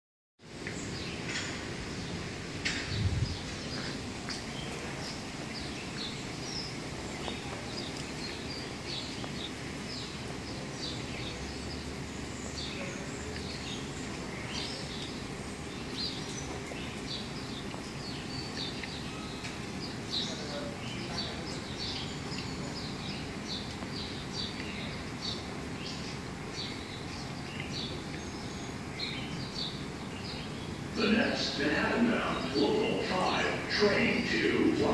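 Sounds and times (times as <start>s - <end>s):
birds chirping: 0.4s - 34.9s
low outdoor hum: 0.4s - 34.9s.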